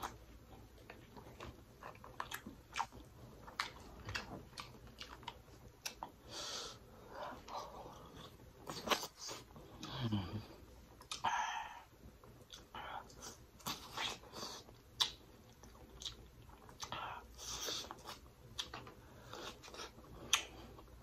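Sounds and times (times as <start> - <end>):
chewing: 0.0 - 6.2, 12.3 - 20.9.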